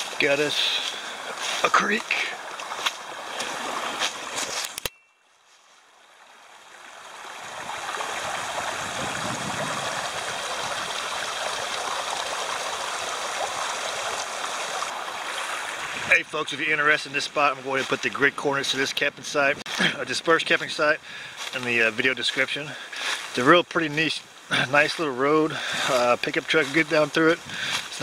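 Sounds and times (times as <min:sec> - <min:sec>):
creek rushing over rocks: 0:00.0 - 0:04.7, 0:05.9 - 0:28.0
footsteps in dry leaves: 0:00.0 - 0:06.0, 0:27.7 - 0:28.0.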